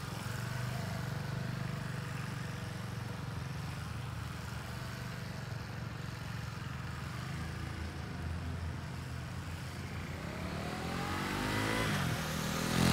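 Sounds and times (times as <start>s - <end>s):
motorcycle engine revving: 6.7s - 12.9s.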